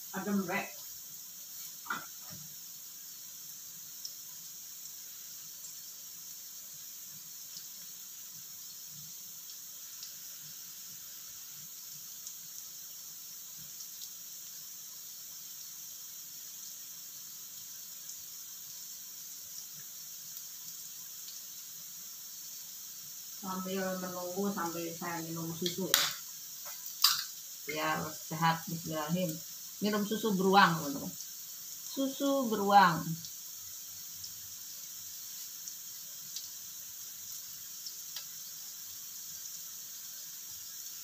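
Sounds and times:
food sizzling in a wok: 0:00.0 - 0:41.0
faint oil pops: 0:25.6 - 0:27.3.

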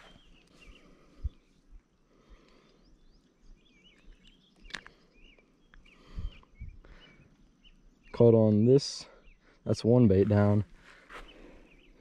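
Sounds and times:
small bird chirps: 0:00.0 - 0:01.7, 0:02.3 - 0:09.6.

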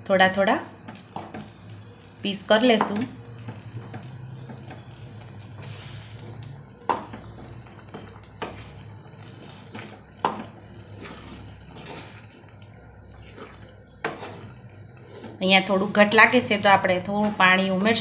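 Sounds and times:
low steady hum: 0:00.0 - 0:18.0
spoon stirring potatoes in gravy: 0:00.8 - 0:18.0
wet squelching: 0:08.4 - 0:15.4.

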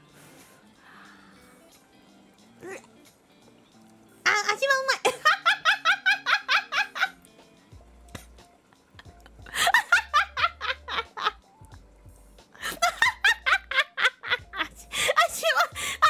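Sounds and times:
soft background music: 0:00.0 - 0:16.0
woman laughing: 0:05.0 - 0:07.2, 0:08.8 - 0:11.4, 0:12.6 - 0:16.0.

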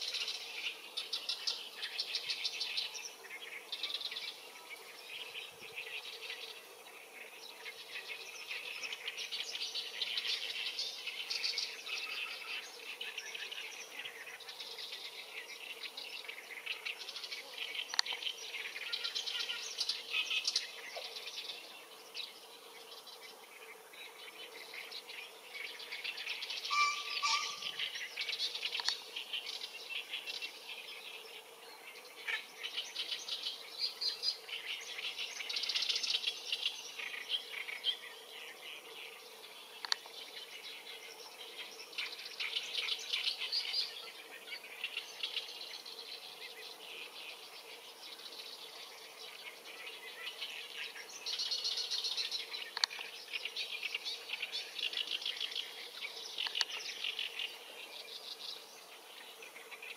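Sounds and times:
faint steady hum: 0:00.0 - 0:59.9
insects and birds chirping: 0:00.0 - 0:59.9.

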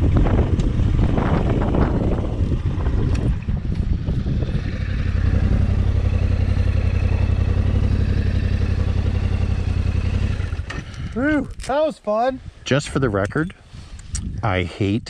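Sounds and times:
second motorcycle idling: 0:00.0 - 0:11.2
motorcycle engine riding and idling: 0:00.0 - 0:11.7.

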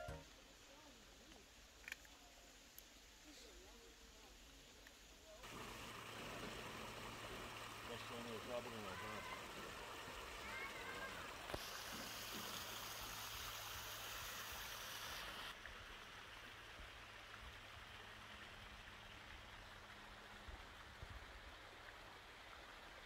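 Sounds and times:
stream splashing over rocks: 0:05.4 - 0:23.0.

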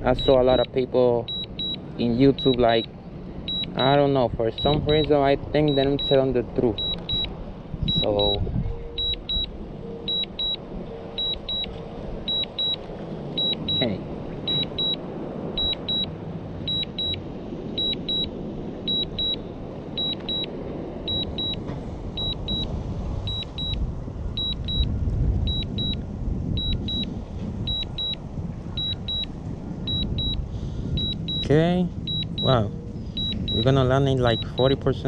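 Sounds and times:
steady low rumble: 0:00.0 - 0:35.0
high double beeps: 0:00.1 - 0:02.9, 0:03.5 - 0:11.7, 0:12.3 - 0:12.8, 0:13.4 - 0:15.0, 0:15.6 - 0:16.1, 0:16.7 - 0:18.3, 0:18.9 - 0:19.4, 0:20.0 - 0:20.5, 0:21.1 - 0:21.6, 0:22.2 - 0:22.7, 0:23.3 - 0:23.8, 0:24.4 - 0:24.9, 0:25.5 - 0:26.0, 0:26.6 - 0:28.2, 0:28.8 - 0:29.3, 0:29.9 - 0:30.4, 0:31.0 - 0:34.8.

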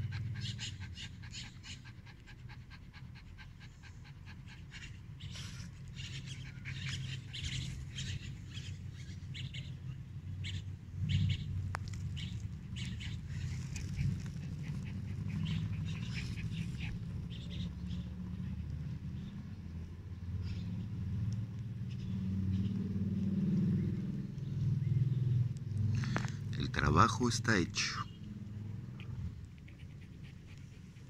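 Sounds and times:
dog panting: 0:00.0 - 0:09.1, 0:12.6 - 0:17.7, 0:28.6 - 0:31.0.

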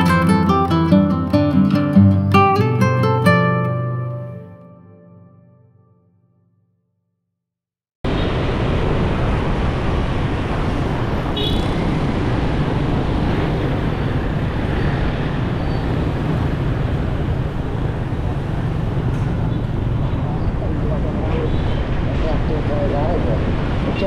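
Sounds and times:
high-pitched tone: 0:00.0 - 0:06.1
road traffic rumble: 0:08.0 - 0:24.0.

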